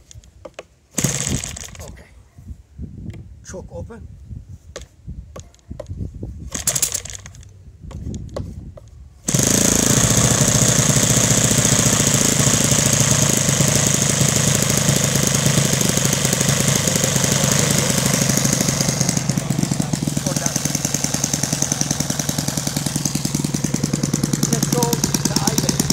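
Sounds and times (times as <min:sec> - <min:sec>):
propeller flipping clicks and knocks: 0:04.8 - 0:25.9
model airplane engine running: 0:09.3 - 0:25.9.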